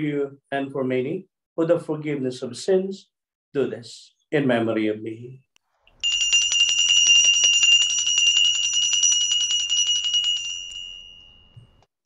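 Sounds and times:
altar bells ringing rapidly: 6.0 - 11.8.

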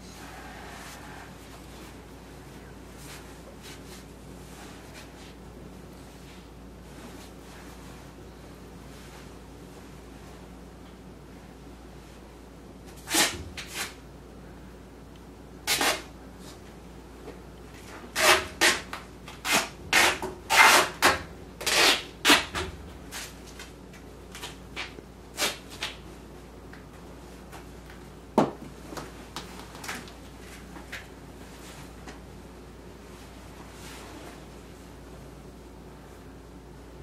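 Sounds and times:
people scuffling on a floor: 0.7 - 5.4.

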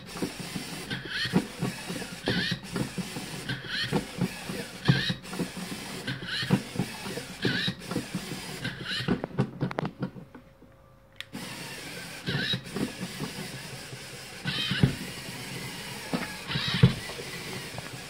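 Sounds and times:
robot motors and leg mechanism: 0.0 - 10.2, 11.3 - 18.0.

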